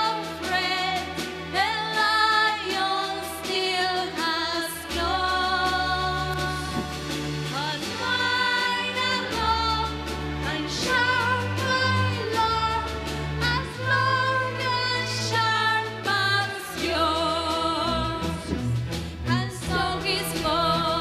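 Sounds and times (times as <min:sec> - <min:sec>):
young woman singing with vibrato: 0:00.0 - 0:18.5
orchestra with cellos: 0:00.0 - 0:21.0.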